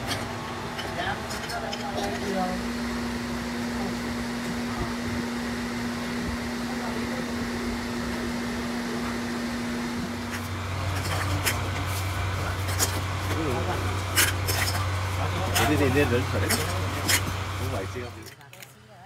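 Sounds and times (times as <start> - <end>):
machinery hum and hiss: 0.0 - 19.0.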